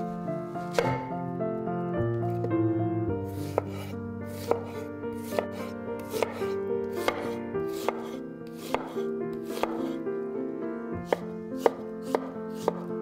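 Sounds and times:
background music: 0:00.0 - 0:13.0
knife slicing onion on board: 0:00.7 - 0:01.1, 0:03.3 - 0:10.0, 0:11.1 - 0:12.9
knife tapping cutting board: 0:00.8 - 0:01.0, 0:03.4 - 0:05.5, 0:06.2 - 0:06.4, 0:07.0 - 0:09.9, 0:11.1 - 0:12.9.

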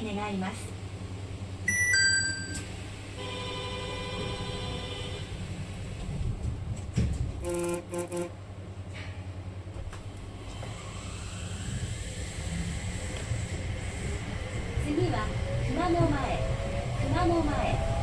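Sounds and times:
train humming: 0:00.0 - 0:18.0
two-note electronic chime: 0:01.7 - 0:02.6
held electronic tone: 0:01.7 - 0:02.7.

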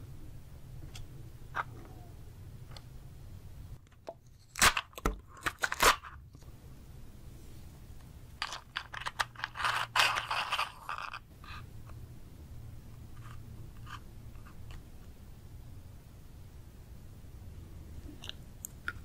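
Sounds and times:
plastic snack cup crackling: 0:08.4 - 0:11.3.

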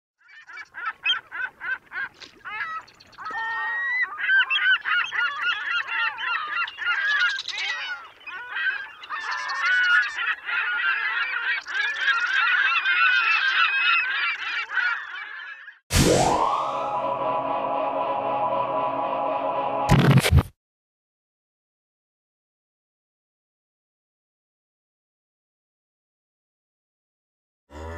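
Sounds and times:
geese honking: 0:00.3 - 0:15.8.

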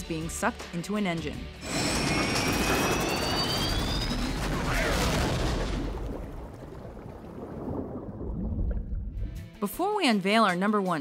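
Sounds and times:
jet engine high whine: 0:01.6 - 0:04.6.

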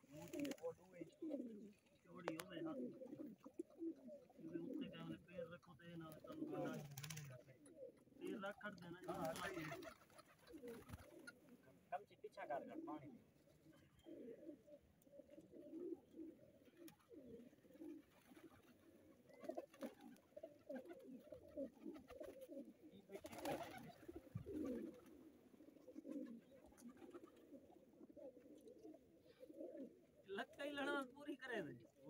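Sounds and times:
pigeons cooing: 0:00.0 - 0:32.0.

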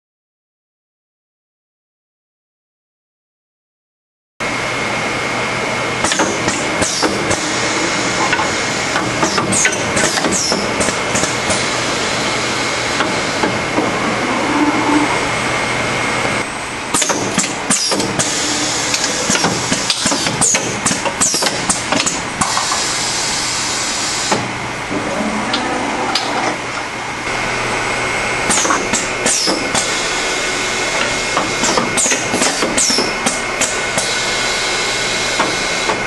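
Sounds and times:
machine hum: 0:04.4 - 0:36.0
thin high whine: 0:11.6 - 0:16.8.

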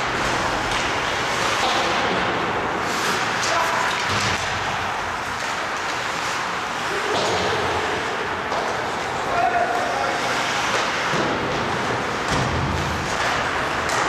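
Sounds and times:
crowd noise: 0:00.0 - 0:14.0
skating: 0:00.0 - 0:14.0
sticks and puck hitting boards: 0:00.0 - 0:14.0.

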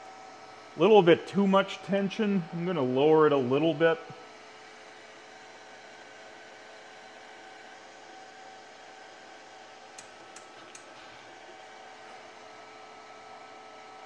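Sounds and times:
welder cooling fan running: 0:00.0 - 0:14.0.

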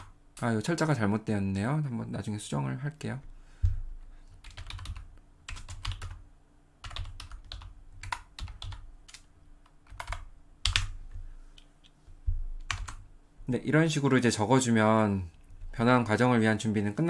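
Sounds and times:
typing on computer keyboard: 0:04.4 - 0:06.2, 0:06.8 - 0:10.9, 0:12.6 - 0:13.0.

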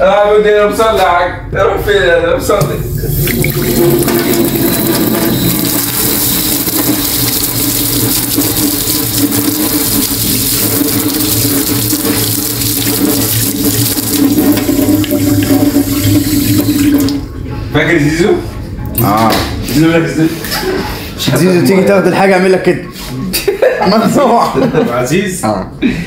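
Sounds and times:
tap water running into sink: 0:02.6 - 0:17.3
water splashing over whisk: 0:02.9 - 0:17.2.

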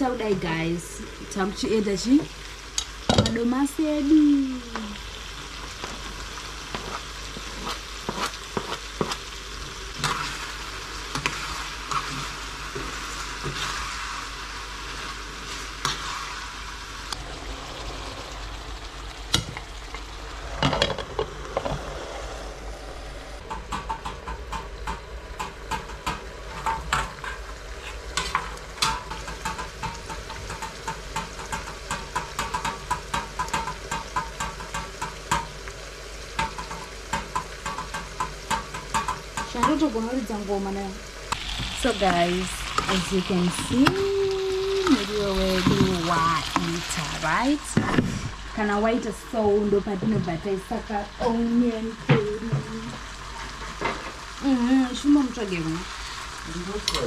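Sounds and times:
food sizzling in a frying pan: 0:00.0 - 0:57.0
metal spoon stirring a pan: 0:05.8 - 0:16.5, 0:23.5 - 0:35.6, 0:36.3 - 0:39.9.

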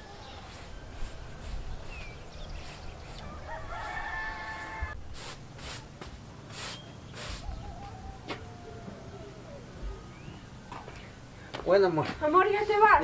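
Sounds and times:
rooster crowing: 0:03.2 - 0:05.0, 0:07.4 - 0:10.9.

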